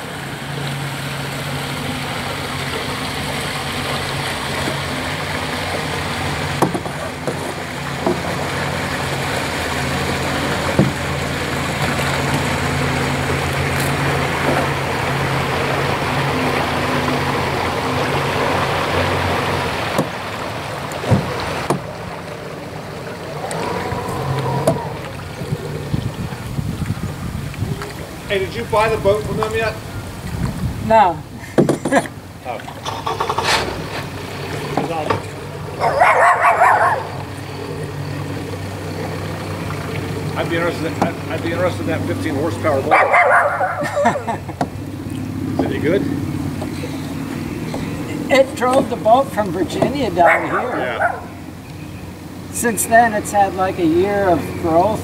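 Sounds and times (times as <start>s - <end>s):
engine humming: 0.0s - 55.0s
paddle knocking on canoe: 5.7s - 13.7s, 19.0s - 20.2s, 20.9s - 22.1s, 23.6s - 28.0s, 31.6s - 32.1s, 40.4s - 41.5s, 45.5s - 45.8s, 48.7s - 51.2s.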